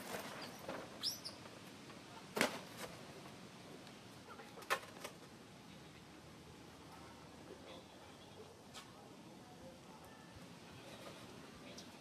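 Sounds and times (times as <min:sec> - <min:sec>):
baby monkey squeaking: 0:01.0 - 0:01.4.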